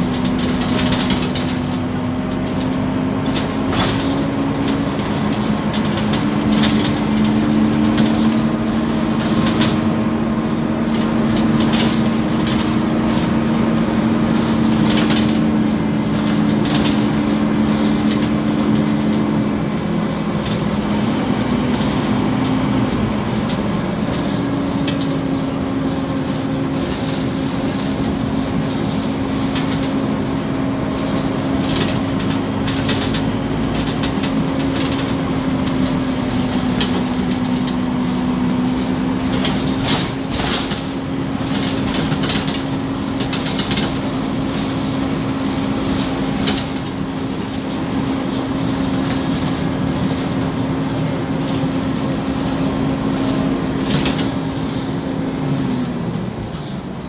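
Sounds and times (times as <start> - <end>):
bus engine drone with whine: 0.0 - 57.0.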